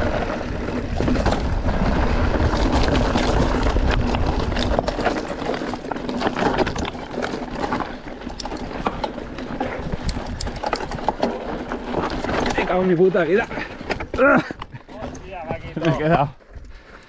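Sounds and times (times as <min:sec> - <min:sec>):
wind rumbling on microphone: 0:00.0 - 0:12.7
bike tyres clicking on loose rock: 0:00.0 - 0:17.0
bike parts rattling: 0:00.1 - 0:17.0.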